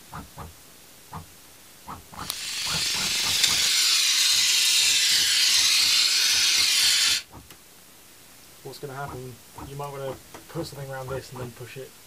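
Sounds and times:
aerosol can spraying hiss: 2.2s - 7.3s.

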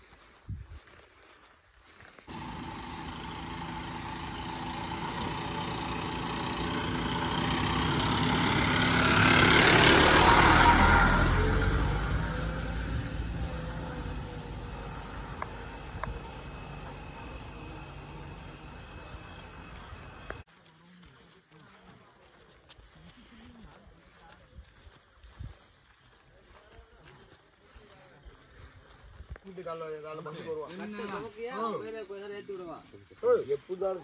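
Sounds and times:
motor vehicle driving past: 2.3s - 20.4s.

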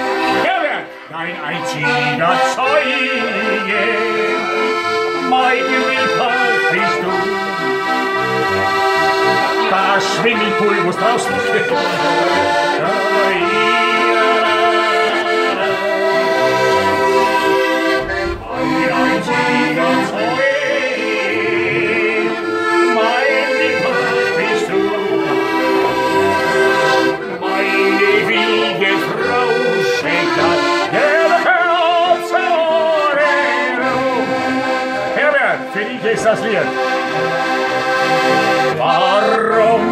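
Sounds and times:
button accordion playing chords: 0.0s - 39.9s.

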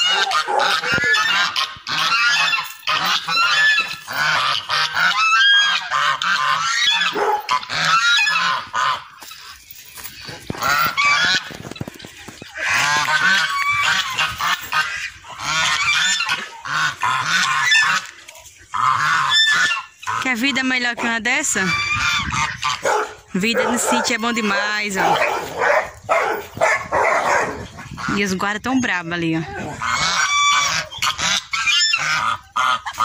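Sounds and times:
geese honking: 0.0s - 33.0s.

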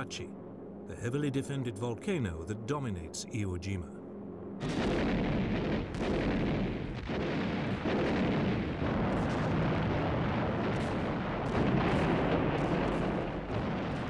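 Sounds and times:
steady rumble: 0.0s - 14.0s
shellfire explosions: 4.6s - 14.0s.

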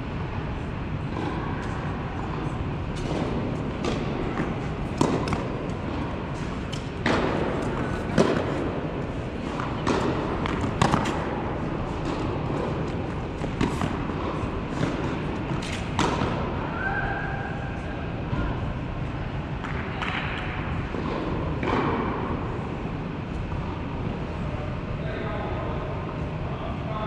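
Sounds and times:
steady hall hum: 0.0s - 27.0s
tennis ball bouncing: 1.1s - 16.5s
tennis racket strikes: 2.9s - 16.4s.

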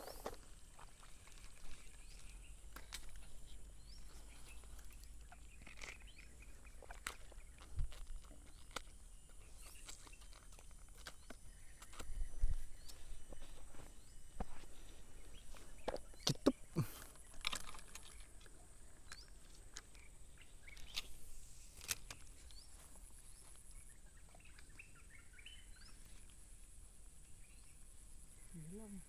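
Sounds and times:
bird chirps: 1.5s - 26.4s.

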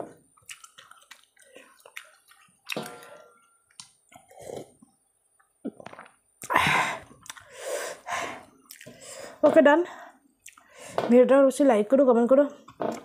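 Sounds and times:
chewing and smacking: 0.4s - 4.2s, 8.6s - 8.9s.

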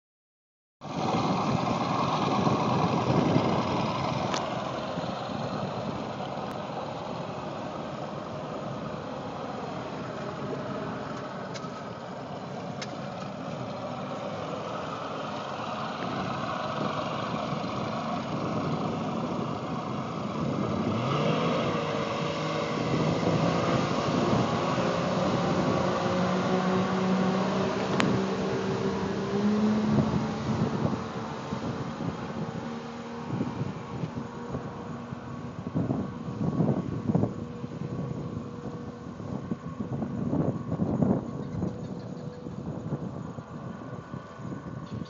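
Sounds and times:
outboard motor running: 0.9s - 9.1s, 12.3s - 40.0s
wind and water rush: 15.8s - 41.2s
engine revving up: 20.4s - 34.7s.

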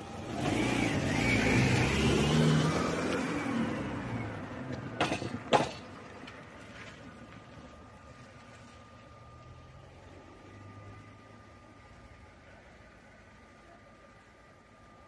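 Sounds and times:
car engine driving past: 0.0s - 5.0s.

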